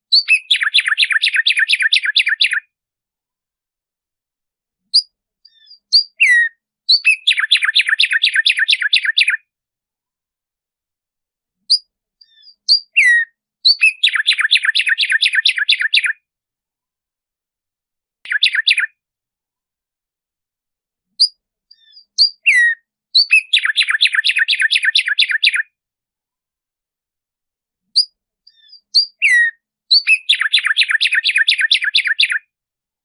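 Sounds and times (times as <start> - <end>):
sparrow singing: 0.0 - 2.7, 4.8 - 9.5, 11.6 - 16.2, 18.3 - 19.0, 21.1 - 25.8, 27.9 - 32.5.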